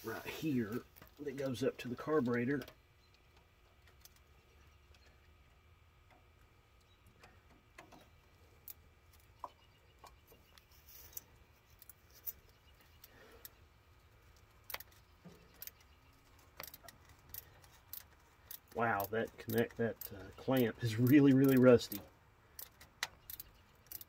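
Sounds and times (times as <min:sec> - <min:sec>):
metal tools on hose clamp: 0:14.4 - 0:22.0, 0:22.6 - 0:24.0
ratchet clicks: 0:14.4 - 0:24.0.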